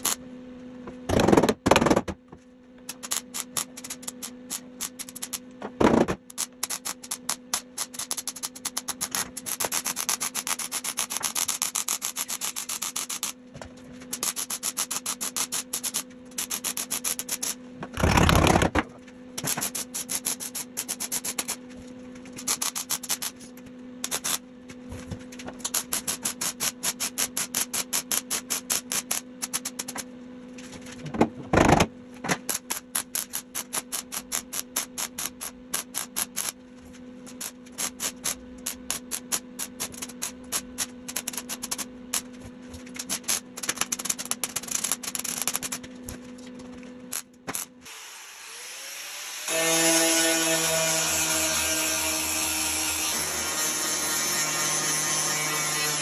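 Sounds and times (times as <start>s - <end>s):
welding arc crackling: 0.0s - 0.2s, 2.9s - 5.4s, 6.3s - 13.4s, 14.1s - 18.7s, 19.4s - 21.6s, 22.4s - 24.4s, 25.6s - 30.1s, 32.5s - 36.6s, 37.2s - 45.9s, 47.1s - 47.8s
steady hum: 0.0s - 48.5s.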